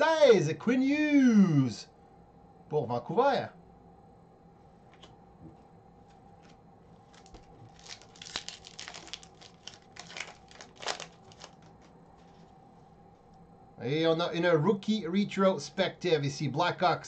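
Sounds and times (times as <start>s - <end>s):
foil wrapper tearing and crinkling: 7.1s - 12.4s.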